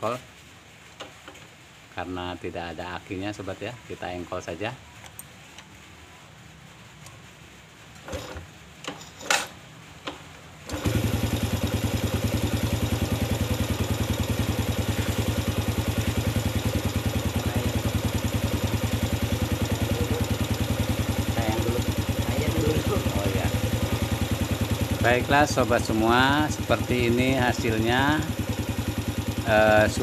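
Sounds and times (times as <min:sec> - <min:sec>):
motorcycle engine idling: 0:10.7 - 0:30.0.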